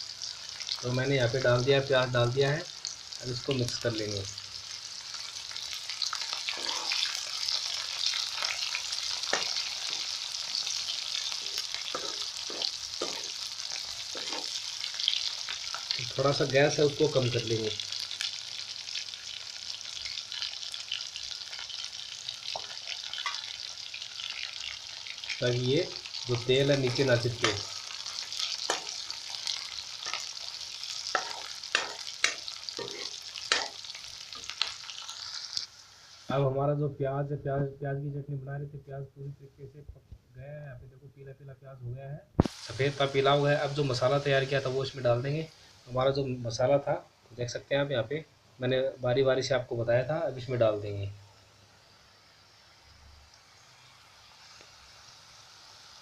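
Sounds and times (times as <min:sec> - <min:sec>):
onions sizzling in oil: 0:00.0 - 0:36.6, 0:42.4 - 0:56.0
spatula scraping pan: 0:06.4 - 0:14.8, 0:25.9 - 0:34.6.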